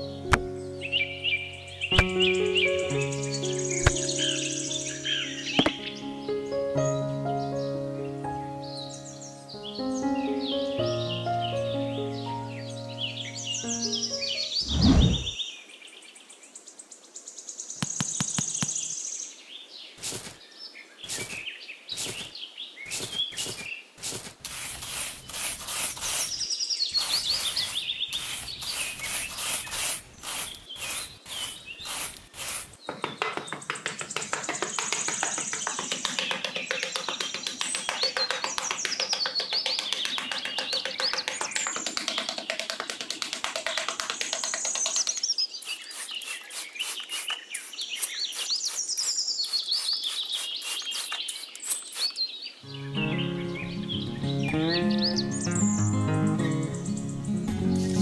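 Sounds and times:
birds chirping: 0:00.0 - 0:15.8, 0:17.4 - 0:58.0
trowel scraping through sand: 0:20.0 - 0:20.4, 0:22.0 - 0:22.3, 0:22.9 - 0:32.8, 0:45.6 - 0:52.2.

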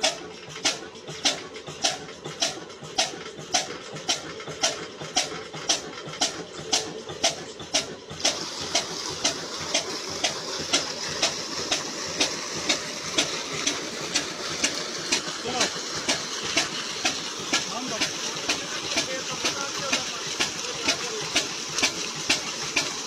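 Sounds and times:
flywheel engine running: 0:00.0 - 0:23.0
water pouring into tank: 0:07.2 - 0:23.0.

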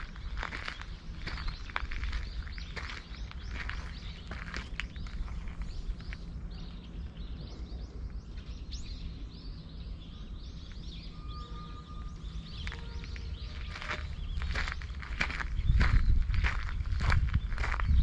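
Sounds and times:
footsteps on gravel: 0:00.0 - 0:06.3, 0:12.2 - 0:18.0
low rumble: 0:00.0 - 0:18.0
small birds chirping: 0:00.0 - 0:18.0.

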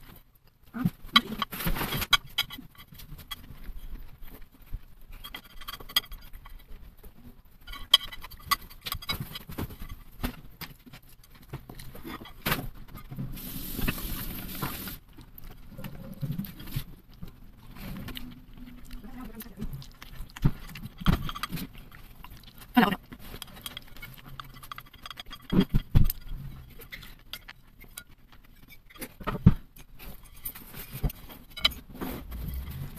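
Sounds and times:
close chewing: 0:00.0 - 0:32.9
chopsticks scraping on plate: 0:05.1 - 0:06.7, 0:07.6 - 0:10.2, 0:11.8 - 0:14.9, 0:19.8 - 0:32.9.

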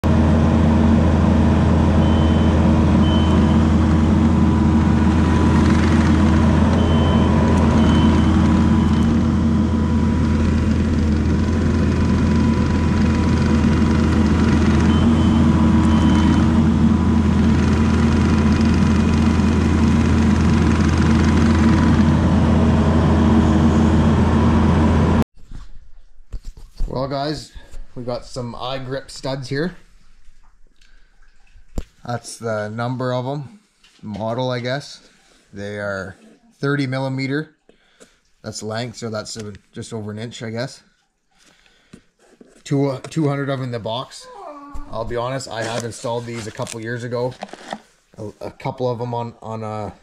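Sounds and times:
diesel engine running: 0:00.0 - 0:25.2
reversing alarm beeping: 0:01.9 - 0:04.7, 0:06.6 - 0:09.9, 0:14.2 - 0:17.1.

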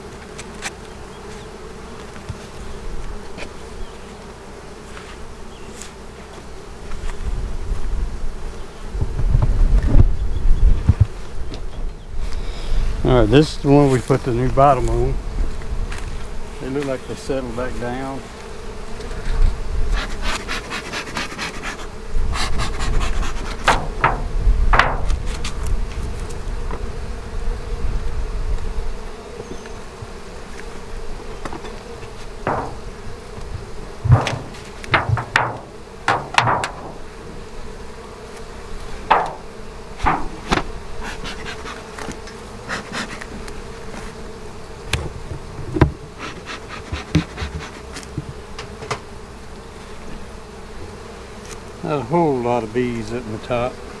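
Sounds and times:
bees buzzing: 0:00.0 - 0:54.0
hive cover knocks and clicks: 0:23.5 - 0:25.6, 0:31.4 - 0:37.2, 0:39.0 - 0:42.4, 0:46.6 - 0:49.1.

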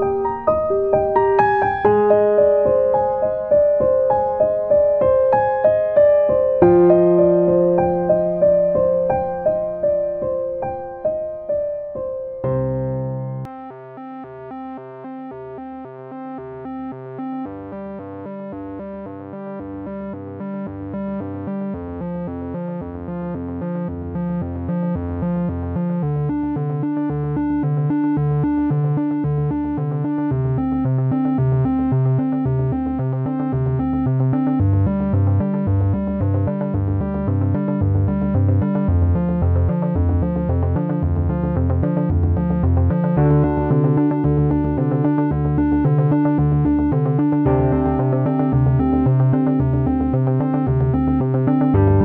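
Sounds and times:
keyboard and synthesizer music: 0:00.0 - 0:52.0
pulsing bass: 0:19.7 - 0:52.0.

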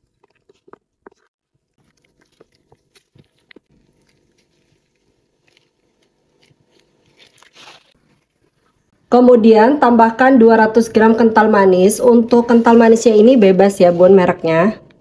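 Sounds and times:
plastic pouch squelching and crinkling: 0:00.0 - 0:08.9.

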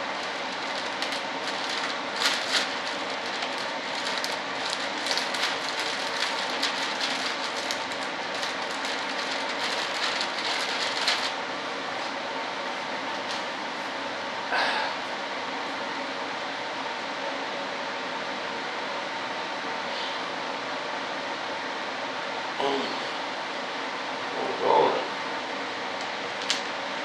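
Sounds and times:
plastic bag crinkling: 0:00.0 - 0:11.4.

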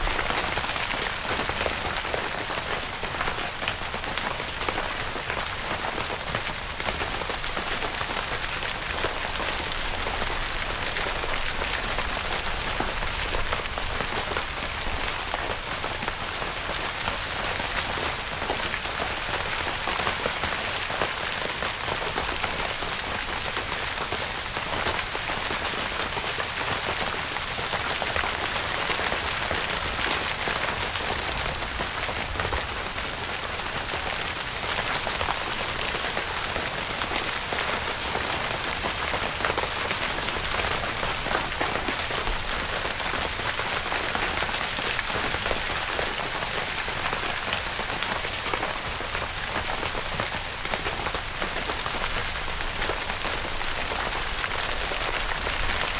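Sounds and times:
rain on tent fabric: 0:00.0 - 0:55.9.

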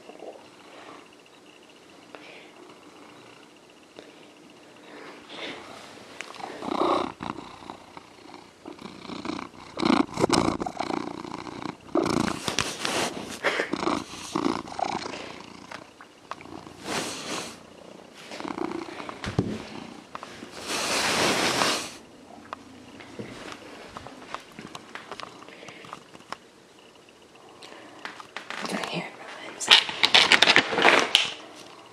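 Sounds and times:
cat purring: 0:02.3 - 0:03.5, 0:04.1 - 0:26.2.

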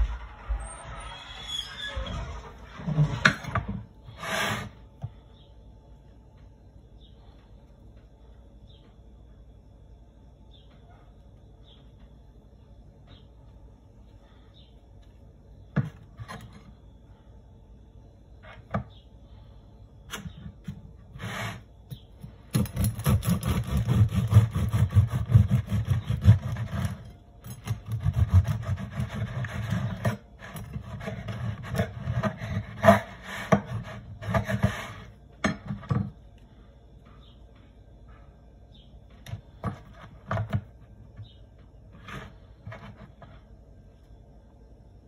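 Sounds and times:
bread knife sawing through loaf: 0:04.1 - 0:04.8, 0:21.1 - 0:21.7, 0:22.6 - 0:35.1.

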